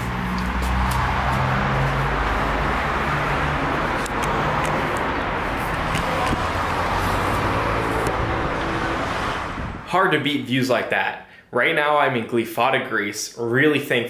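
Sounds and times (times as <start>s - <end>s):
road traffic noise: 0.0s - 10.1s.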